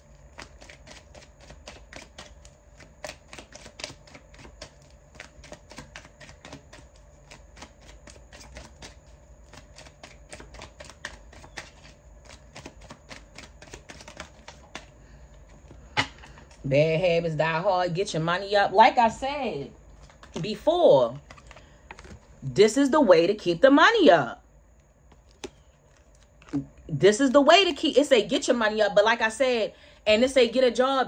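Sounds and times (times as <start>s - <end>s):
cards being shuffled: 0.3s - 16.6s, 19.9s - 22.4s, 25.1s - 26.7s.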